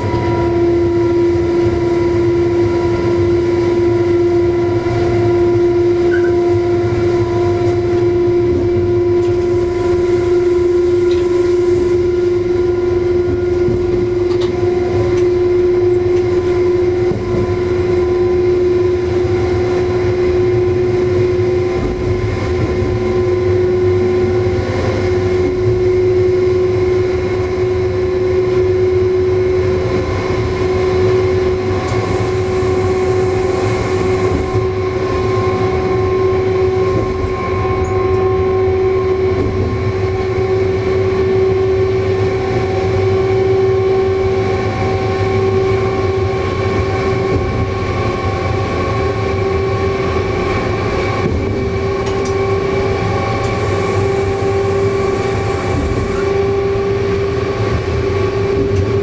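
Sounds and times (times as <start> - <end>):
traction drive whine: 0.0 - 59.0
train running rumble: 0.0 - 59.0
brief high hiss: 53.5 - 56.3.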